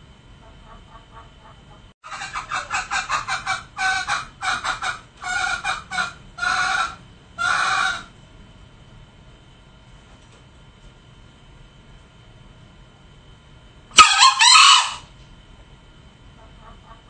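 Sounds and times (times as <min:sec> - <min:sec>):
junglefowl clucking and calling: 0:00.4 - 0:08.1, 0:14.0 - 0:15.1, 0:16.4 - 0:17.0.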